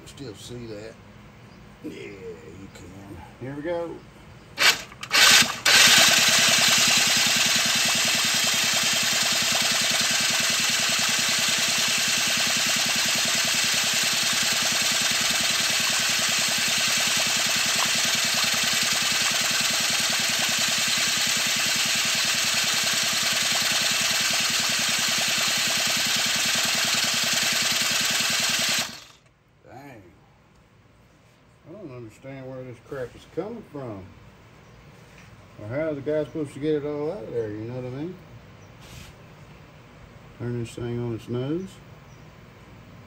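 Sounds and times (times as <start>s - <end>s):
electric starter cranking engine: 4.6s - 29.3s.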